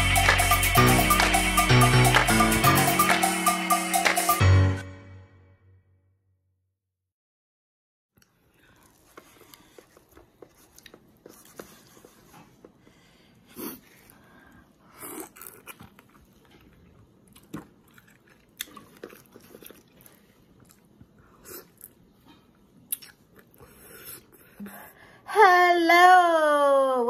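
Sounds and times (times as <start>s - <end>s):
mouth clicks while chewing: 22.8s - 23.6s.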